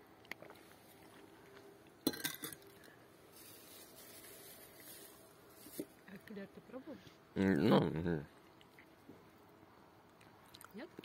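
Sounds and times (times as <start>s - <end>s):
faint background hiss: 0.0s - 11.0s.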